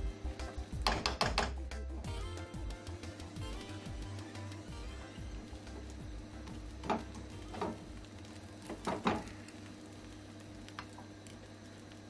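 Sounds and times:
low steady hum: 0.0s - 12.0s
spatula knocking against frying pan: 0.8s - 1.7s.

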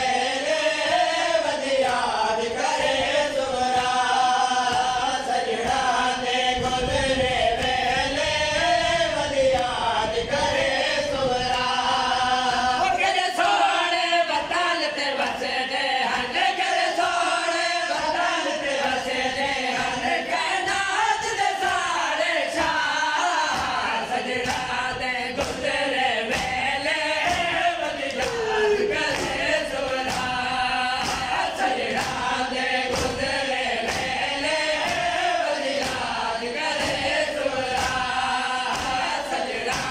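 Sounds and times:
men chanting in unison: 0.0s - 39.9s
hands slapping chests: 0.8s - 6.8s, 21.6s - 39.9s.

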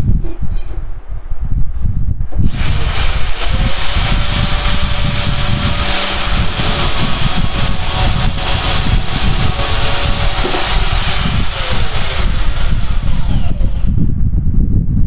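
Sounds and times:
band saw cutting pipe: 2.5s - 14.1s.

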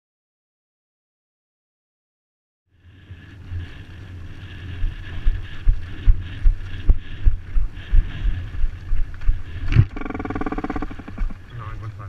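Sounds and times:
low regular thumps: 2.8s - 12.0s
wind on microphone: 2.8s - 12.0s.

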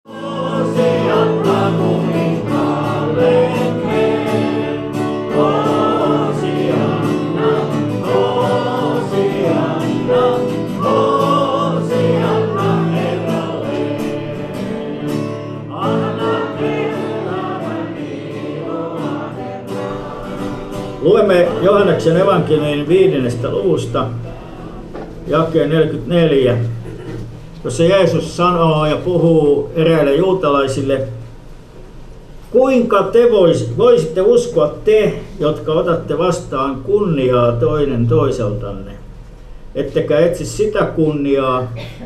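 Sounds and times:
choir singing with instruments: 0.1s - 27.5s.

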